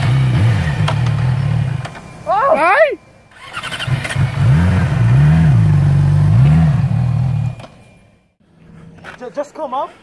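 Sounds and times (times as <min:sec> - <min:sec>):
motorcycle engine revving: 0:00.0 - 0:02.0, 0:03.3 - 0:08.3.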